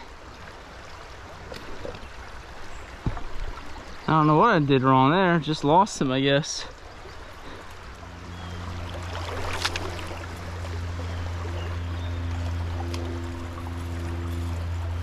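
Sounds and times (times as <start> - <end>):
river water running over riffle: 0.0 - 15.0
steady low hum: 6.7 - 15.0.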